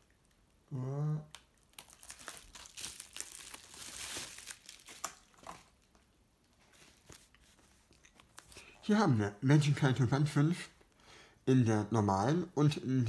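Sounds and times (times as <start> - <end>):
bubble wrap crinkling: 1.2 - 8.8.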